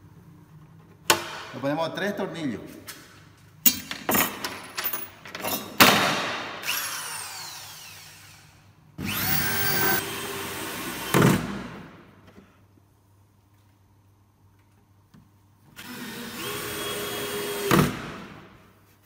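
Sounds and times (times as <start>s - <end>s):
power drill driving screws: 9.0s - 11.4s, 15.8s - 18.0s.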